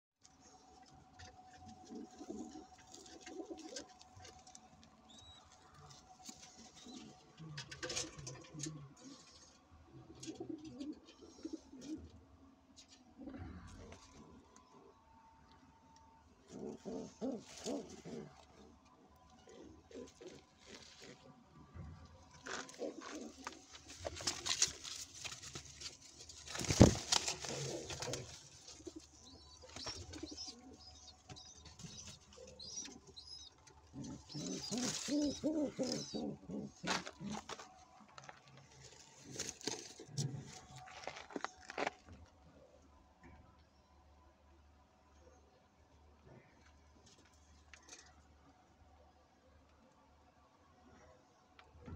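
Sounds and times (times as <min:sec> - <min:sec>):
pigeons cooing: 0:01.7 - 0:04.0, 0:06.4 - 0:12.1, 0:16.5 - 0:18.8, 0:19.4 - 0:21.2, 0:22.4 - 0:24.7, 0:26.4 - 0:37.6
rustling handling noise: 0:20.0 - 0:21.4, 0:22.3 - 0:42.4.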